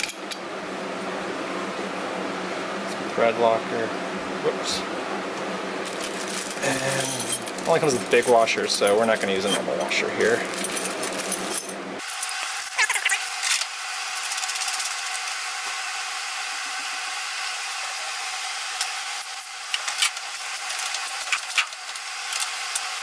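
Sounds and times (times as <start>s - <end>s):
hand tools clicking and clinking: 18.8s - 23.0s.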